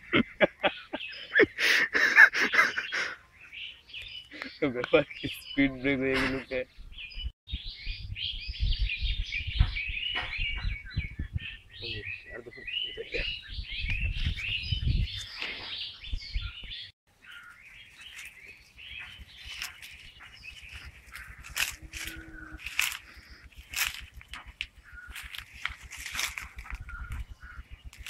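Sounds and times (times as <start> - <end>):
small birds chirping: 0.0 - 28.0
low thumps and rumbling: 7.5 - 11.6.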